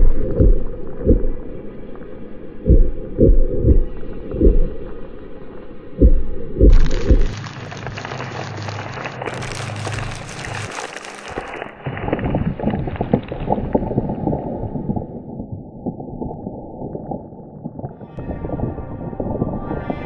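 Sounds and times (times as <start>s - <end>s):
heavy low thumps: 0.0s - 1.5s, 2.6s - 4.8s, 6.0s - 7.4s
low hum: 0.0s - 10.6s
small clicks and crackles: 6.6s - 13.8s
dense rain-like crackling: 6.7s - 14.7s.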